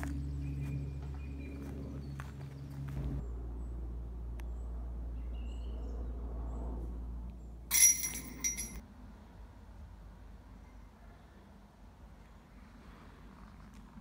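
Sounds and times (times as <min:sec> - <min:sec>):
chains jingling: 0:07.7 - 0:08.8
disc striking metal chain basket: 0:07.7 - 0:08.8.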